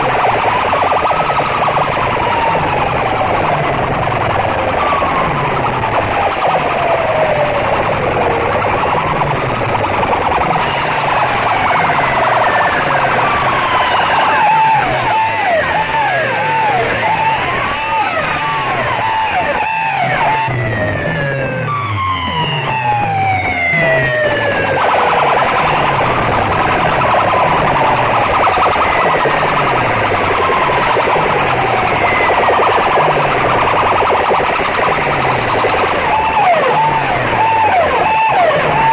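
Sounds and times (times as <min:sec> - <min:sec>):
low repeating pulse: 0:00.0 - 0:38.9
siren wail through loudspeakers: 0:00.0 - 0:38.9
low repeating beat: 0:22.2 - 0:38.9.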